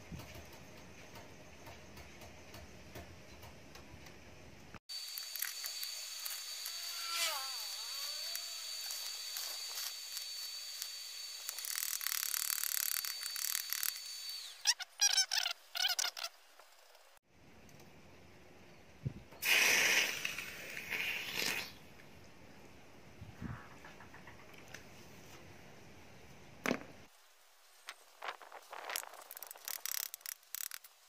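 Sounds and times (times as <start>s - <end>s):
electric arc welder crackling: 4.9s - 14.8s, 28.7s - 30.9s.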